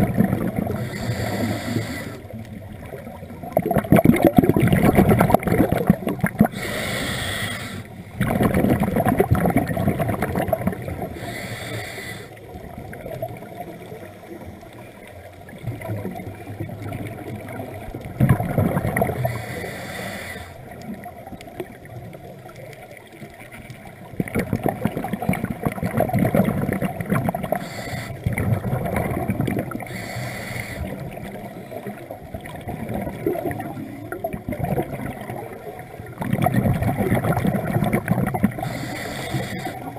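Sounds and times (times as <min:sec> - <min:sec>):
exhaled bubbles burbling: 0:00.0 - 0:06.9, 0:08.0 - 0:11.3, 0:12.3 - 0:19.5, 0:20.6 - 0:30.0, 0:30.8 - 0:39.9
regulator inhale hiss: 0:00.7 - 0:02.3, 0:06.5 - 0:08.0, 0:11.1 - 0:12.4, 0:19.2 - 0:20.7, 0:27.5 - 0:28.2, 0:29.8 - 0:31.7, 0:38.5 - 0:39.9.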